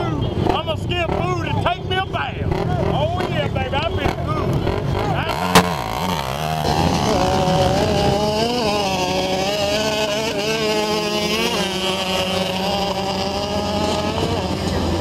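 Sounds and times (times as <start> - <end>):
off-road vehicle engine at high revs: 0.0 - 15.0.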